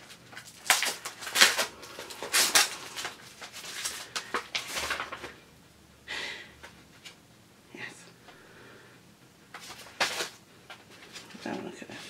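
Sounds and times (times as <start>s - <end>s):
paper and packaging rustling: 0.0s - 5.4s, 9.5s - 11.7s.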